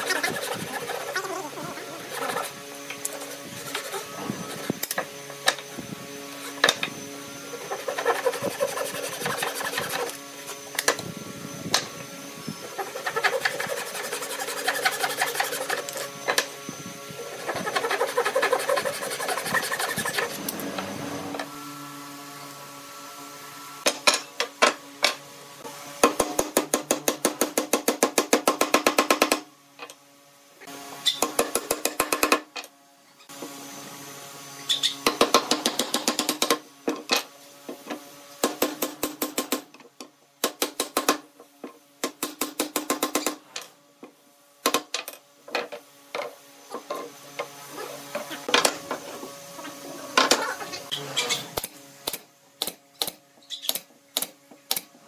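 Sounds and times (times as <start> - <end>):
hand saw cutting wood: 0.0 - 5.6, 6.3 - 10.9, 12.6 - 16.4, 17.2 - 21.5.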